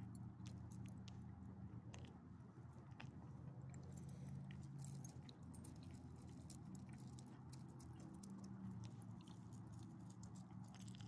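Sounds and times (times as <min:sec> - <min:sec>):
dog claws clicking on pavement: 0:02.9 - 0:11.0.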